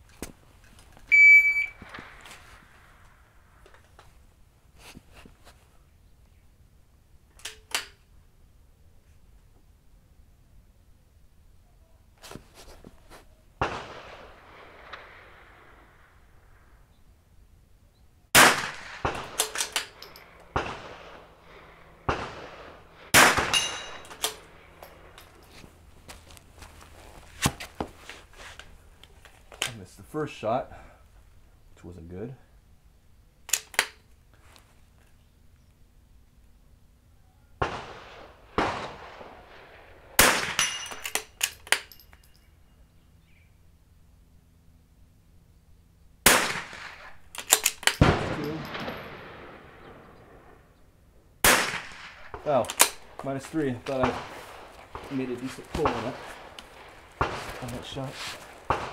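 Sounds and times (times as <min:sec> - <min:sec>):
rifle shots: 0:13.6 - 0:15.8, 0:18.3 - 0:21.4, 0:22.0 - 0:24.7, 0:37.6 - 0:41.2, 0:46.2 - 0:50.6, 0:51.4 - 0:58.9
faint metallic ringing: 0:41.9 - 0:43.0.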